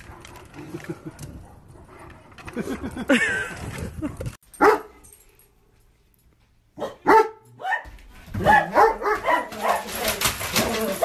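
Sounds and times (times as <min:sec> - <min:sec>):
dog barking: 0:04.6 - 0:04.9, 0:06.8 - 0:10.1.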